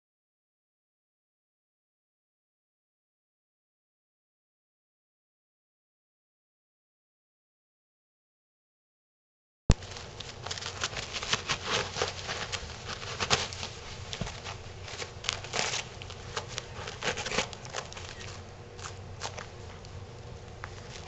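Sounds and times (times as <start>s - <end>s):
cat shredding paper: 9.7s - 21.0s.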